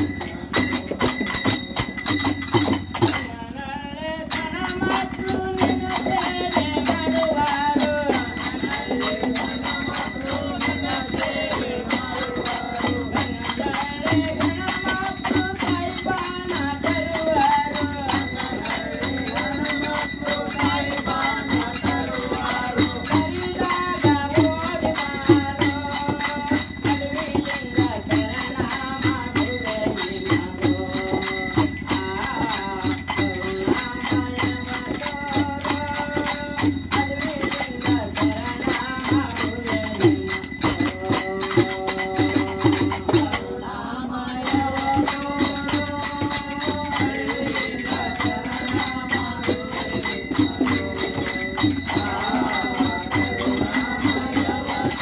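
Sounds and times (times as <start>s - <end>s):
hand cymbals and jingles: 0.0s - 55.0s
men singing devotional song: 0.0s - 55.0s.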